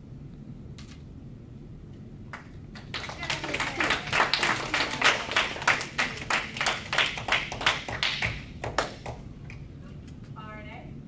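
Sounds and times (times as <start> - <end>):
audience clapping: 2.3 - 9.7.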